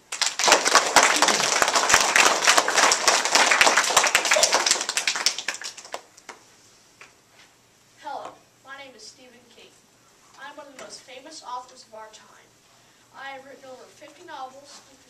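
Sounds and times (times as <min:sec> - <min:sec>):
children applauding: 0:00.0 - 0:06.1.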